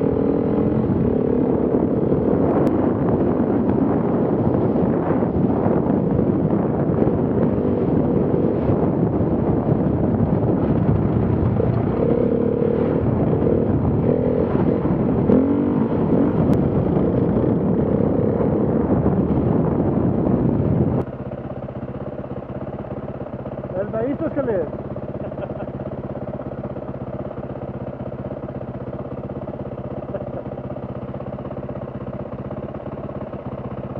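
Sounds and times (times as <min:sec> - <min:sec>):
wind noise on microphone: 0:00.0 - 0:24.7
motorcycle engine idling: 0:00.0 - 0:33.9
motorcycle engine running: 0:00.0 - 0:33.9.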